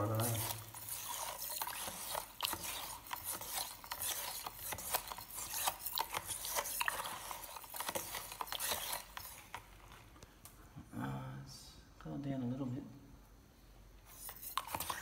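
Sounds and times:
knife scraping in plastic jug: 0:00.0 - 0:09.9, 0:14.0 - 0:15.0.

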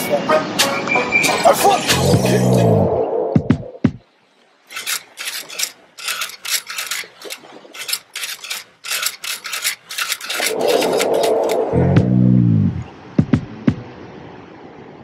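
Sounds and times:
short scratchy rasping sounds: 0:04.7 - 0:11.7.

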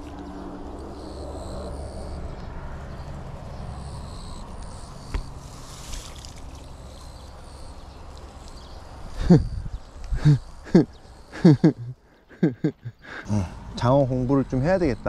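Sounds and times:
steady low rumble: 0:06.6 - 0:12.0.

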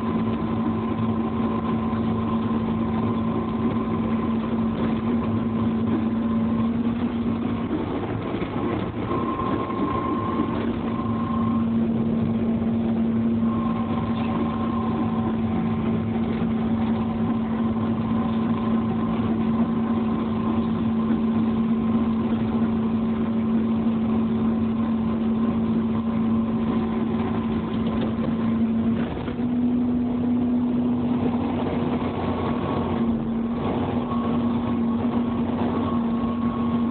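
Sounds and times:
excavator diesel engine running: 0:00.0 - 0:36.9
high whine: 0:00.0 - 0:36.9.

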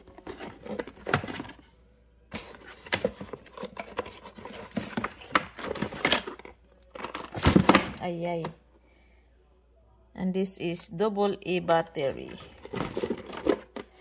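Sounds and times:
plastic packs clicking and crinkling: 0:00.0 - 0:01.6, 0:02.4 - 0:08.0, 0:12.2 - 0:14.0.

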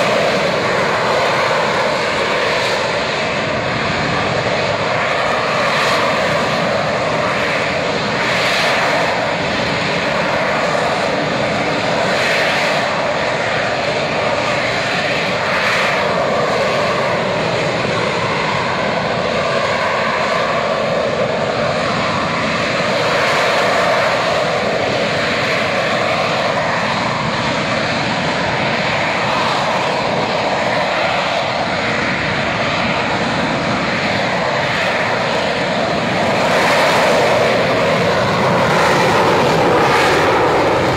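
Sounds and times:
jet engine roaring: 0:00.0 - 0:40.9.

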